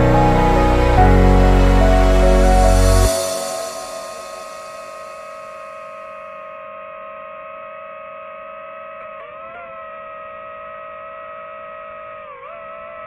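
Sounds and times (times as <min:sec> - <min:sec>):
background music: 0:00.0 - 0:05.4
steady two-tone hum: 0:00.0 - 0:13.0.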